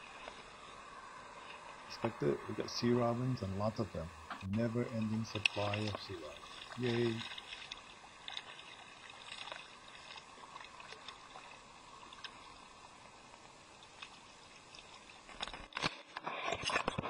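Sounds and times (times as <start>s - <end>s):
water lapping against kayak hull: 0.0s - 15.7s
faint clicks: 4.2s - 11.3s.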